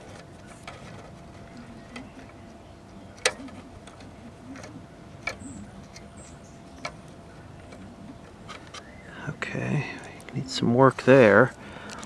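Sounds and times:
sharp clicks of parts handled: 0:11.5 - 0:12.0.

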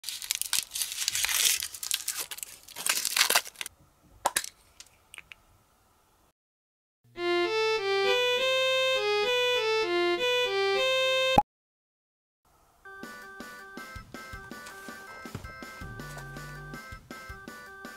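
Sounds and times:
packaging crinkling and tearing: 0:00.0 - 0:03.7.

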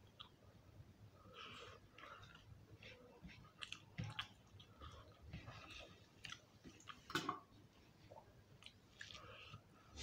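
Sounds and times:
chewing and lip-smacking: 0:00.0 - 0:00.4, 0:01.4 - 0:07.1, 0:08.6 - 0:09.6.

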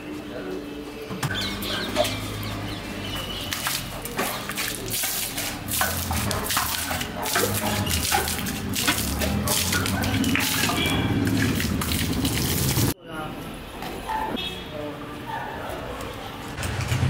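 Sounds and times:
water splashing on pavement: 0:01.4 - 0:13.0.

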